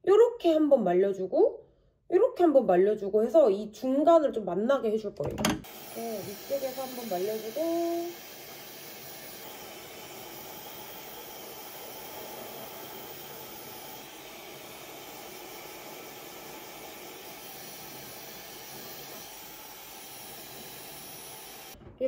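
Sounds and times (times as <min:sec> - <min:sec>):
hair dryer running: 0:05.6 - 0:21.8.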